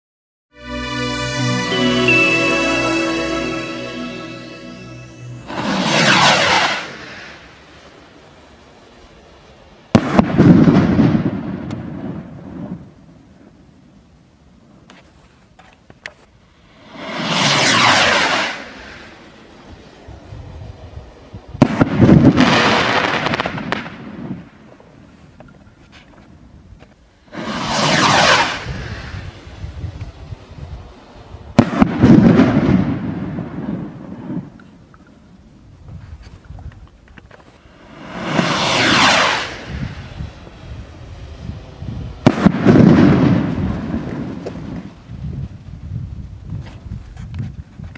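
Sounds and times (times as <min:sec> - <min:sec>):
firework rocket whooshing up: 0:01.6 - 0:08.2, 0:16.4 - 0:24.6, 0:27.2 - 0:34.6, 0:37.6 - 0:45.6
firework bang and crack: 0:05.5 - 0:07.5, 0:09.9 - 0:13.0, 0:16.8 - 0:19.1, 0:21.6 - 0:24.6, 0:27.3 - 0:29.4, 0:31.6 - 0:34.6, 0:37.8 - 0:40.2, 0:42.0 - 0:45.3.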